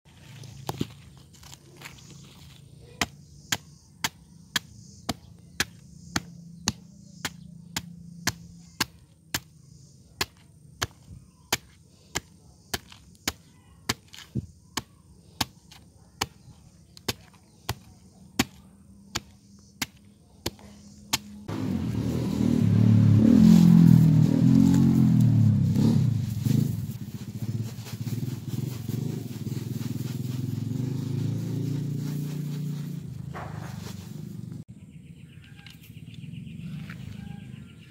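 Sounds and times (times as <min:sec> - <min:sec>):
blade chopping banana stem: 0:03.0 - 0:21.7
low rumbling noise: 0:21.5 - 0:34.7.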